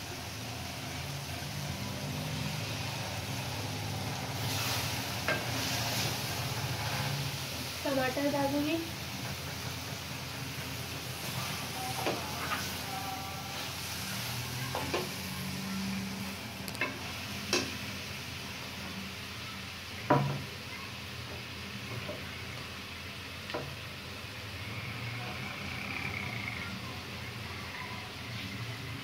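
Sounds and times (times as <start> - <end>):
food sizzling in a pan: 0.0 - 29.0.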